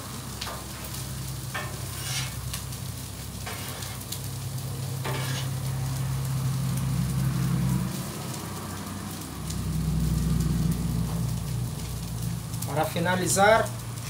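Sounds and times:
food sizzling on a griddle: 0.0s - 14.0s
metal spatulas scraping: 1.6s - 2.4s, 3.4s - 4.0s, 5.0s - 5.6s
low rumble: 5.6s - 12.7s.

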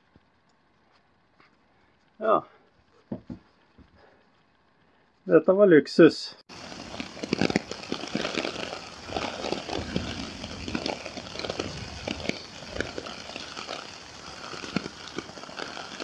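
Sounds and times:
rain on tent fabric: 6.5s - 16.0s.

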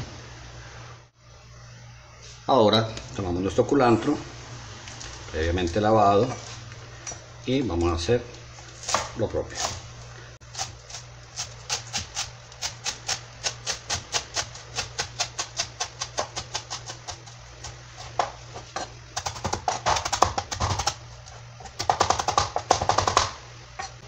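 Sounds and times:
knife chopping on cutting board: 8.8s - 9.8s, 10.6s - 18.4s.

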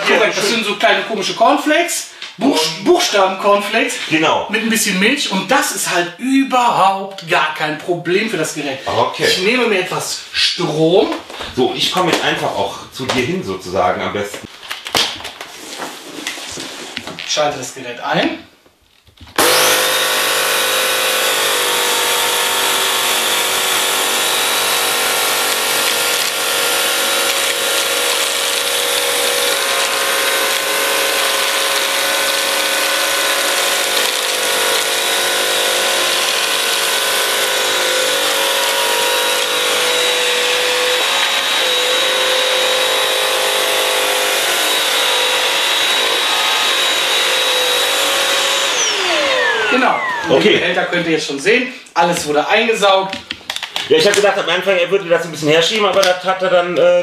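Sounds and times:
floor cleaner humming and whining: 19.4s - 50.6s.

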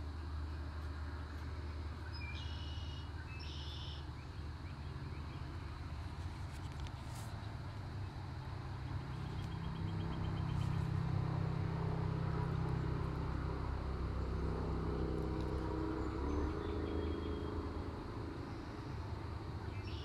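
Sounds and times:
low motor rumble: 0.0s - 20.0s.

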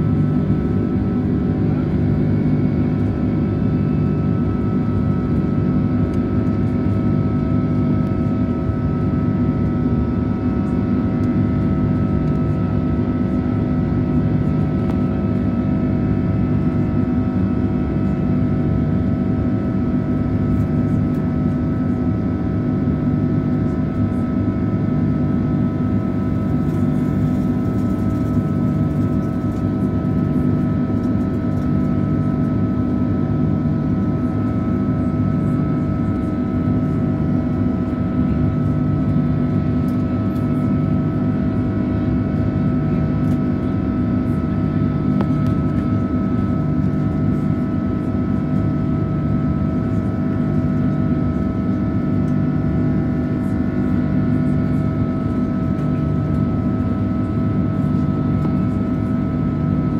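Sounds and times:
jet engines droning: 0.0s - 59.8s
low cabin hum: 25.1s - 34.8s.

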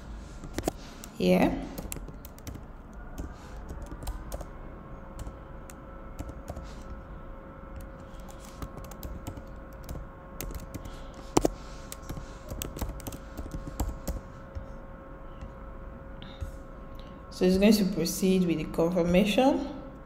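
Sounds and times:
faint steady hum: 0.0s - 20.0s
computer keyboard typing: 0.4s - 4.5s, 5.2s - 6.9s, 7.7s - 14.7s.

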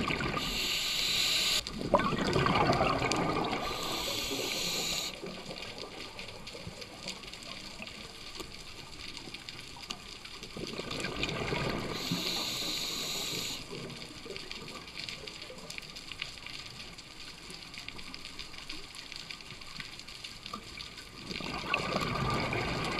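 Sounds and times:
bubbling exhale underwater: 0.0s - 6.2s, 21.4s - 22.9s
crackling and clicking: 0.0s - 22.9s
regulator hissing inhale: 0.4s - 1.6s, 3.4s - 5.2s, 11.9s - 13.8s.

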